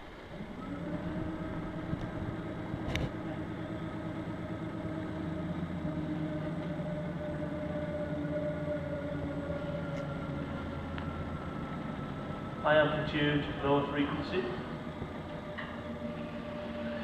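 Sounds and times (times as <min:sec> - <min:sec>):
shaker plate mechanical hum: 0:00.0 - 0:17.0.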